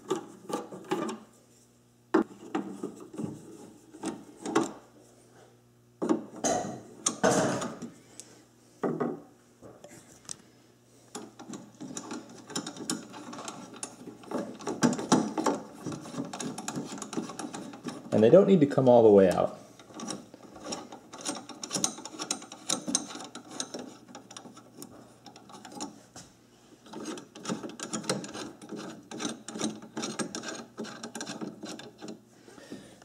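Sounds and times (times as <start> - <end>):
metal scraping and clicking: 11.1 - 18.1, 19.3 - 26.0, 26.8 - 32.2.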